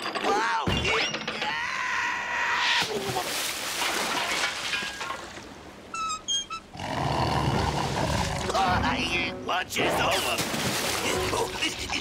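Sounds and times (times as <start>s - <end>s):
short high squeaks: 5.9s - 6.7s.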